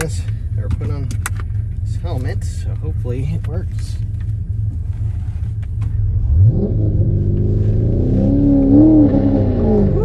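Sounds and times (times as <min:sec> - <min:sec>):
engine idling drone: 0:00.0 - 0:10.0
car engine revving and accelerating: 0:04.6 - 0:10.0.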